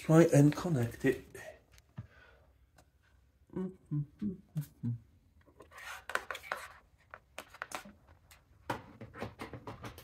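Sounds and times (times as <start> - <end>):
rustling scrape: 5.6 - 7.8.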